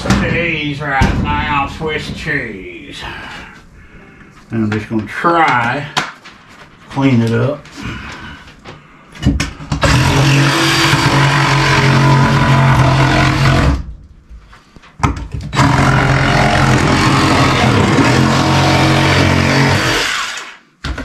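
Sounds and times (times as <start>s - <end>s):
power tool cutting wall: 9.8s - 13.9s, 15.5s - 20.6s.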